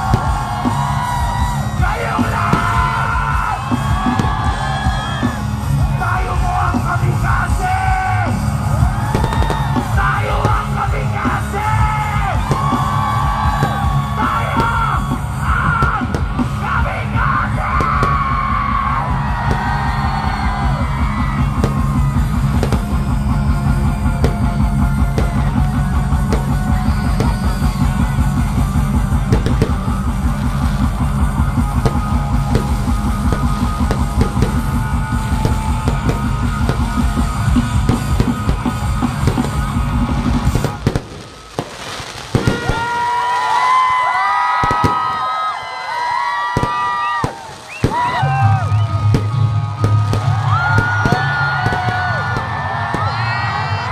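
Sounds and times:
sung and shouted vocals: 0.0 - 21.3
fast drumbeat: 0.0 - 41.1, 46.6 - 53.9
electric guitars: 0.0 - 41.3.

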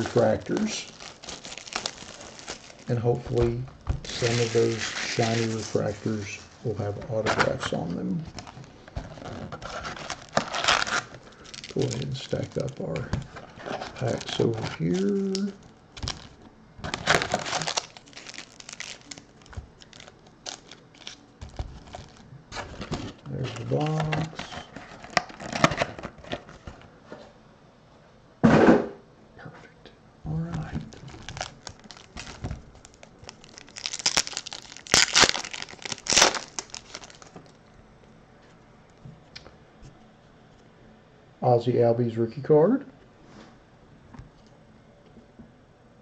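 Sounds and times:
foil packs crinkling: 0.0 - 26.8, 30.6 - 37.6.

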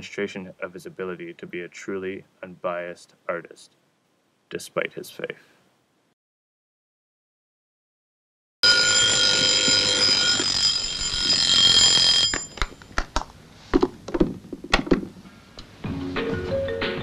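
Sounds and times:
alarm clock ringing: 8.6 - 12.9.

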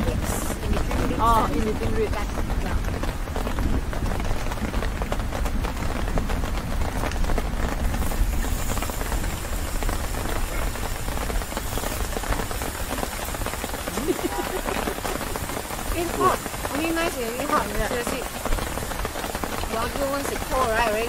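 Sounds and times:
rain on a tent roof: 0.0 - 21.0
meat sizzling in a frying pan: 8.0 - 13.4.

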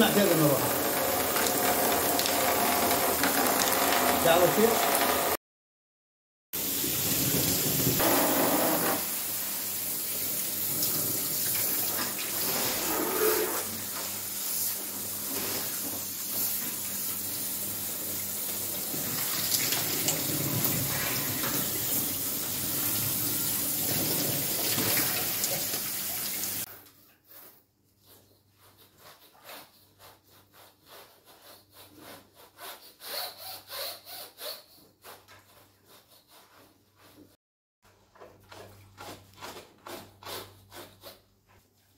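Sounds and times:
hose water jet spraying: 6.6 - 26.7.

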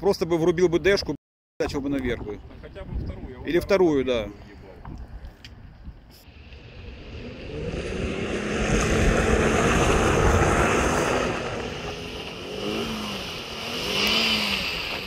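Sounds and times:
engine working under load: 6.2 - 15.0
loud rush of noise: 6.3 - 15.0.

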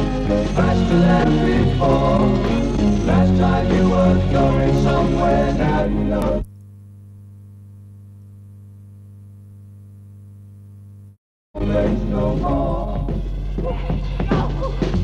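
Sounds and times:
music with singing: 0.0 - 6.4, 11.6 - 15.0
steady low hum: 5.7 - 11.2.

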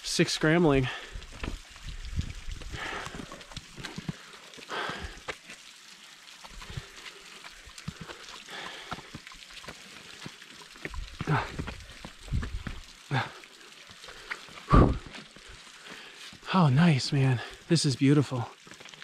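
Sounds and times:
heavy breaths and grunts: 0.8 - 1.4, 2.6 - 5.3, 7.9 - 9.2, 11.1 - 16.6, 17.2 - 17.7.

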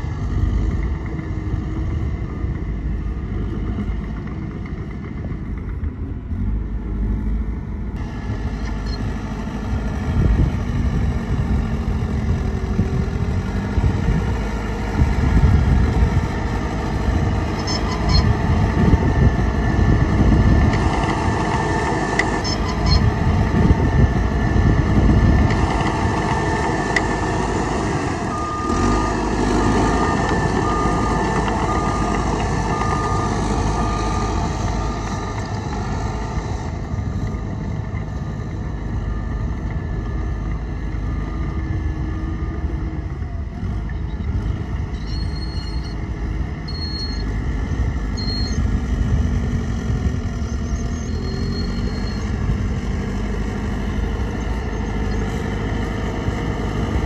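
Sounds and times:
heavy diesel engines revving: 0.0 - 57.0
reversing alarm beeping: 8.8 - 9.1, 17.4 - 19.0, 22.2 - 23.3, 26.4 - 35.8, 45.0 - 46.0, 46.6 - 47.4, 48.1 - 48.8, 50.7 - 52.4.

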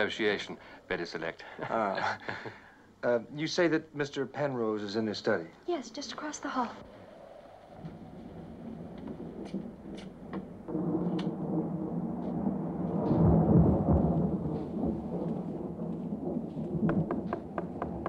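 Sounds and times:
deep rumble: 6.7 - 18.0.

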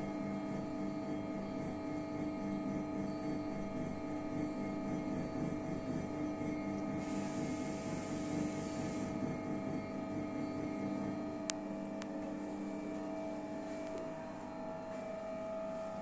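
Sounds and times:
potter's wheel motor whining: 4.4 - 10.9
hiss: 7.0 - 9.1.

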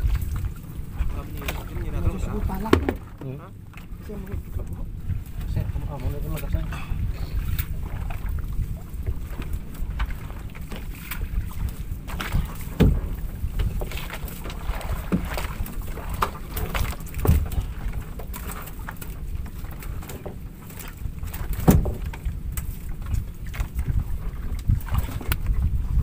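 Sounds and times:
low rumble: 0.0 - 18.2
net knocking against wooden boat: 1.2 - 5.6, 12.1 - 19.1, 21.3 - 26.0.

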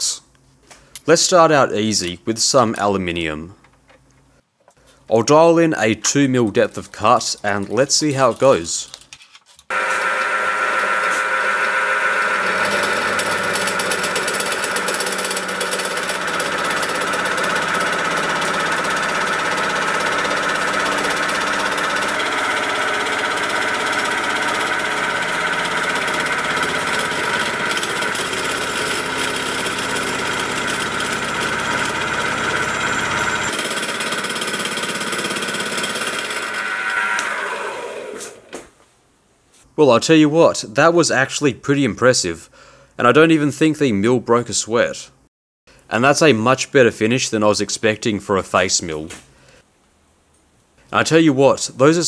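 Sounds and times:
milling cutter cutting metal: 9.7 - 38.5.

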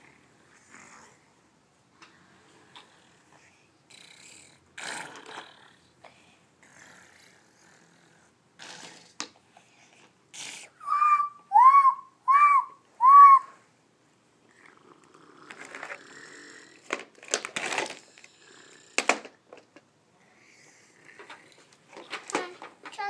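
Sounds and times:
short whistle-like notes: 10.8 - 13.6.

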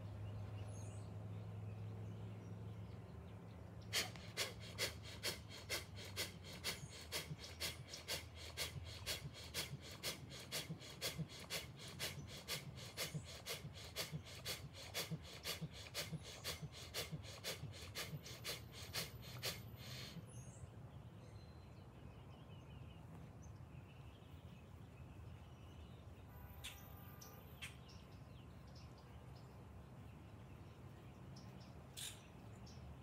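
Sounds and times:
rapid forceful breathing: 3.9 - 20.2.

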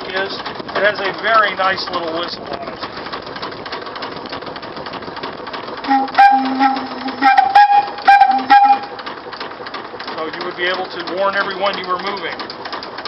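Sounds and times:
steam engine hissing: 5.5 - 12.8
steam whistle blasts: 5.9 - 9.0.

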